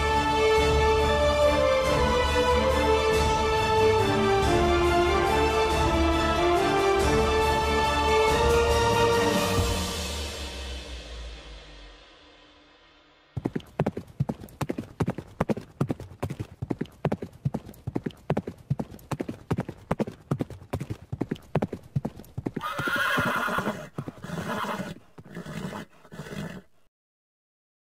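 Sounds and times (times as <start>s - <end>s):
horse hooves clip-clopping: 13.4s - 26.6s
horse whinnying: 22.5s - 26.8s.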